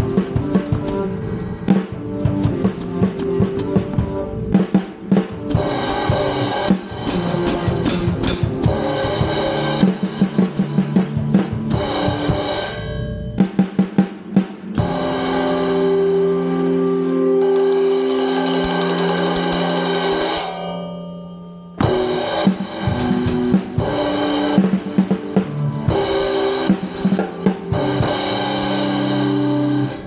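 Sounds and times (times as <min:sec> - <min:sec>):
drum kit played with sticks: 0:00.0 - 0:30.0
cymbal strokes: 0:17.4 - 0:24.6.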